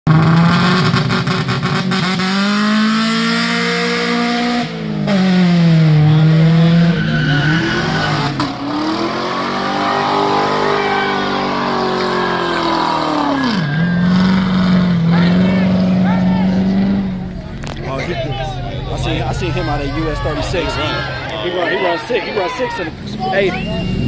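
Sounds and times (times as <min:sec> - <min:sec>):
car engine revving hard: 0:00.1 - 0:21.4
tyres squealing: 0:06.2 - 0:24.0.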